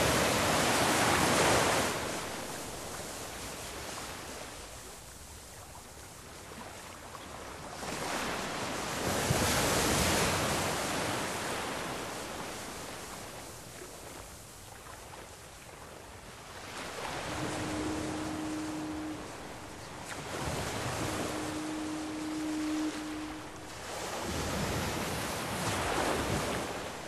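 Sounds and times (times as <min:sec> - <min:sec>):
short steady hum: 0:17.1 - 0:24.9.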